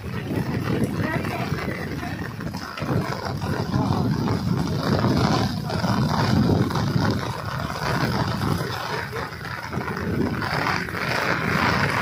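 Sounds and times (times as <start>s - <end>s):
heavy rain: 0.0s - 12.0s.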